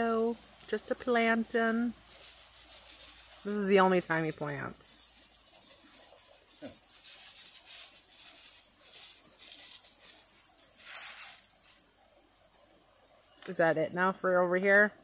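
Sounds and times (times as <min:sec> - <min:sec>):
seed pattering onto dry soil: 0:00.0 - 0:11.9
steps in loose mulch: 0:00.0 - 0:11.9
high insect trill: 0:00.0 - 0:15.0.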